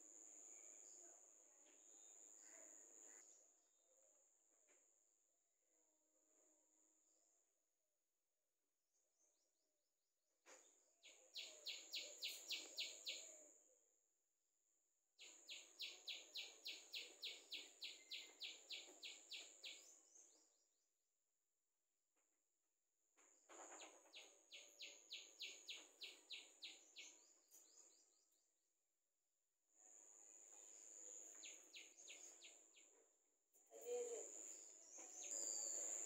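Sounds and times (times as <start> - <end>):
faint bird chirps: 0.3 - 3.5, 11.0 - 13.6, 15.2 - 20.6, 23.7 - 28.6, 29.9 - 36.0.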